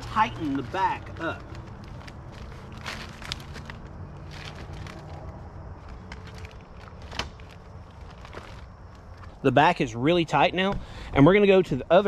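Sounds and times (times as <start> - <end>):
tarp crackle: 0.0 - 9.4
tarp rustling and scraping: 0.0 - 9.5.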